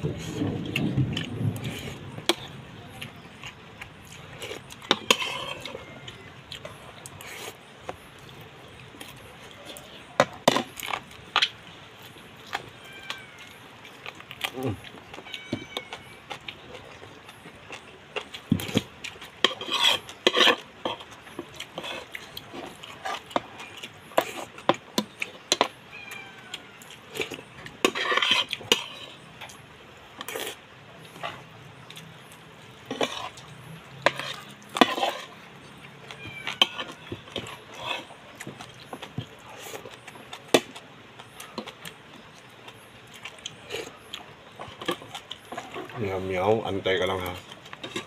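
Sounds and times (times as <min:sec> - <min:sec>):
eating noise: 0:00.0 - 0:25.8, 0:26.4 - 0:48.0.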